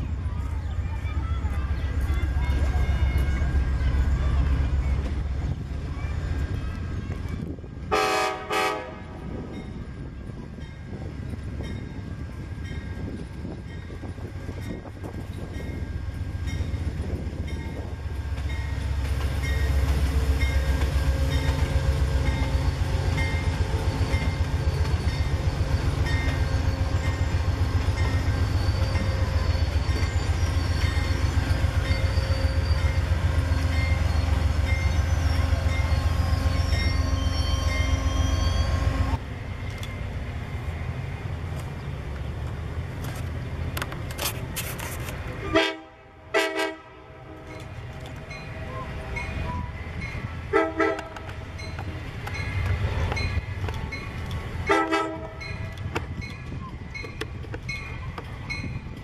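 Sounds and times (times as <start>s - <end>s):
diesel locomotive passing: 0.0s - 59.0s
train rumble: 0.0s - 59.0s
train cars clattering on rails: 9.2s - 38.4s, 47.4s - 59.0s.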